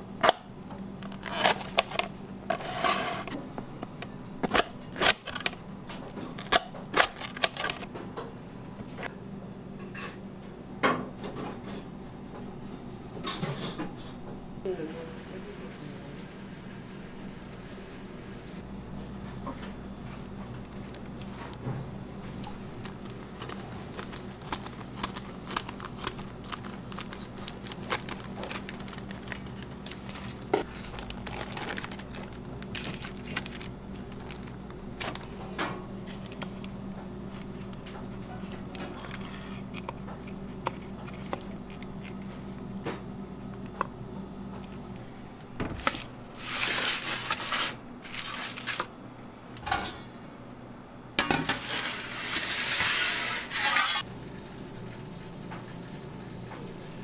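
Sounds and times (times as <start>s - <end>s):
steady low hum: 0.0s - 57.0s
aluminium foil crinkling: 0.8s - 2.7s, 22.2s - 35.4s, 45.8s - 49.0s
foil tray scraping and rustling: 1.0s - 3.4s, 22.6s - 35.3s, 45.8s - 48.9s, 51.5s - 54.1s.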